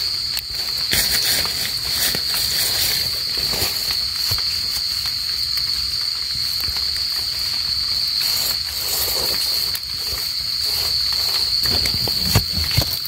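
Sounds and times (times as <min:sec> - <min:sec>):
insect chorus trilling: 0:00.0 - 0:13.0
metal trowel scraping soil: 0:00.6 - 0:04.3, 0:08.2 - 0:13.0.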